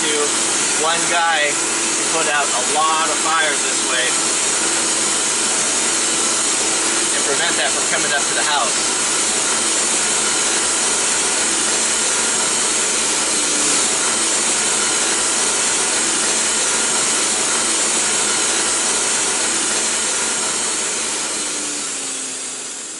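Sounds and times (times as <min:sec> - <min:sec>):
tractor diesel engine: 0:00.0 - 0:21.0
pump engine running: 0:00.0 - 0:22.9
fire hose water stream hissing: 0:02.1 - 0:04.1.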